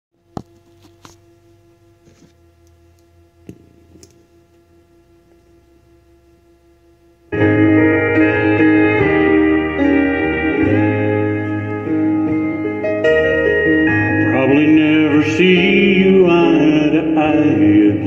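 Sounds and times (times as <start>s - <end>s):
faint steady hum: 0.2s - 18.0s
country song backing track: 7.3s - 18.0s.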